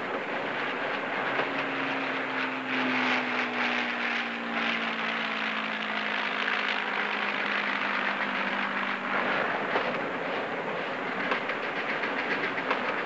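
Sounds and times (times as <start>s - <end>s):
moving steam train rushing: 0.0s - 13.0s
propeller plane engine droning: 0.0s - 13.0s.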